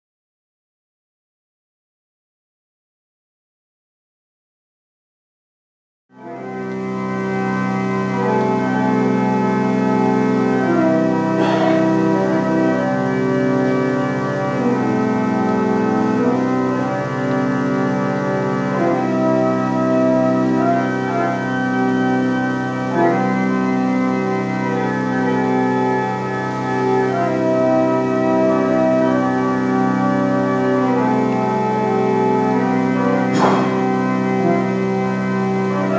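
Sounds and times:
pipe organ chords: 6.2s - 35.9s.

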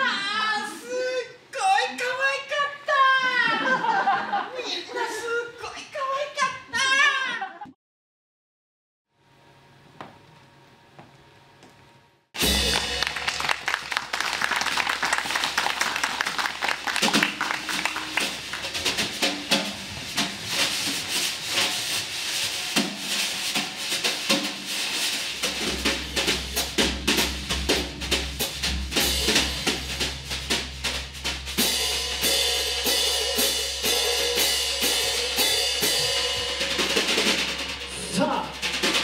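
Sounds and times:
cymbal wash: 12.4s - 13.4s, 17.6s - 39.0s
drum kit played fast: 12.4s - 39.0s.

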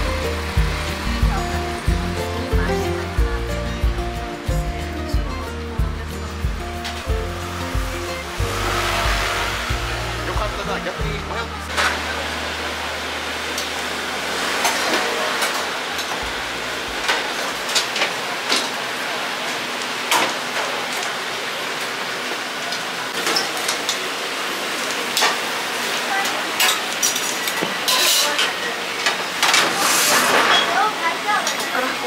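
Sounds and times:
indistinct voices: 1.0s - 16.7s
dishes and utensils clinking: 26.6s - 31.8s.

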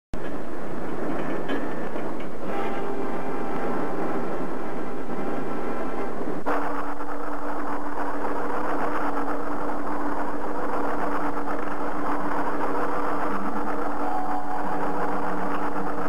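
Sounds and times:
electronic hum: 2.4s - 16.0s
dense crackling fizz: 5.4s - 16.0s.

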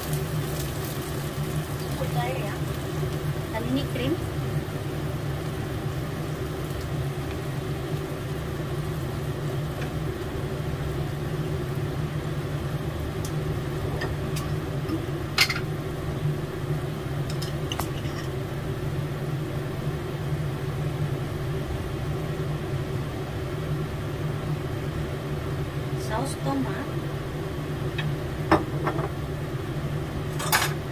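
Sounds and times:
low machine hum: 0.0s - 30.9s.

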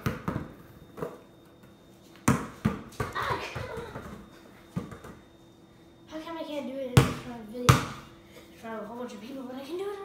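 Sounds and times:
basketball bouncing on hard floor: 0.0s - 1.2s, 2.2s - 5.2s, 7.0s - 8.0s.

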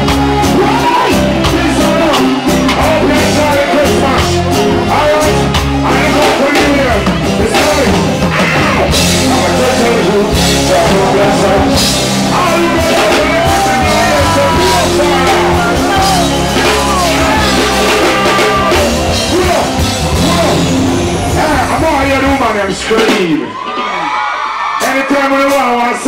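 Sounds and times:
reggae band playing: 0.0s - 24.0s
man singing into microphone: 0.5s - 19.6s.

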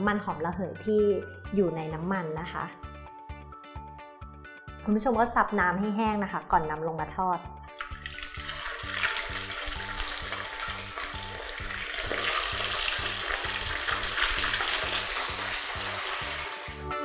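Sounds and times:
faint background music: 0.0s - 17.0s
fish deep-frying in oil: 7.7s - 16.8s.

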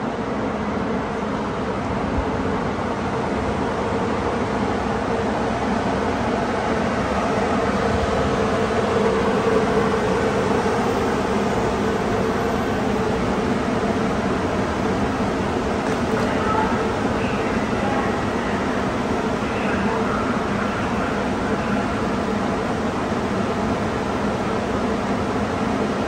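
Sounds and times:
light-rail train rumbling to a stop: 0.0s - 26.0s
constant hum: 0.2s - 26.0s.

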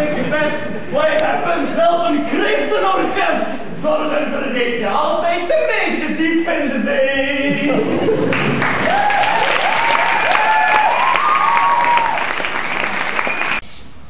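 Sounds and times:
audience clapping: 8.2s - 13.6s.

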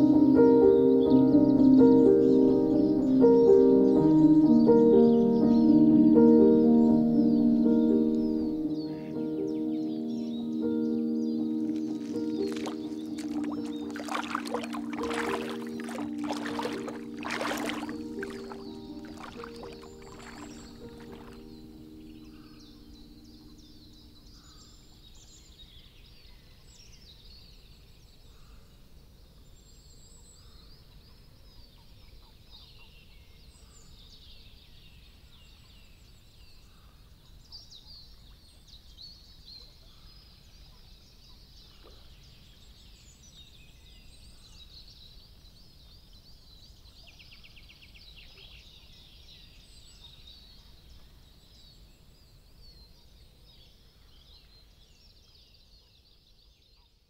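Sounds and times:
small birds chirping: 0.0s - 25.2s
bird trill: 0.8s - 24.5s.

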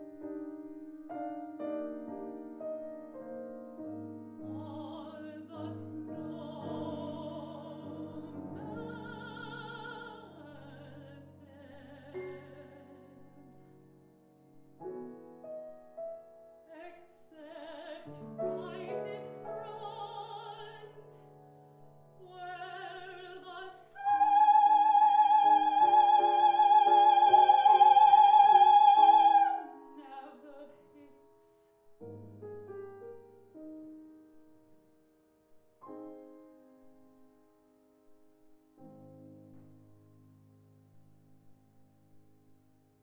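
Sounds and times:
grand piano accompaniment: 0.0s - 43.0s
woman singing opera: 4.4s - 13.5s, 16.7s - 21.4s, 22.2s - 31.7s.

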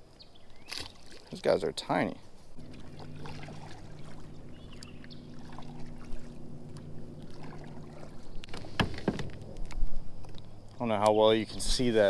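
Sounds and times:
kayak drive humming: 1.8s - 12.0s
sharp knocks: 8.5s - 9.7s.

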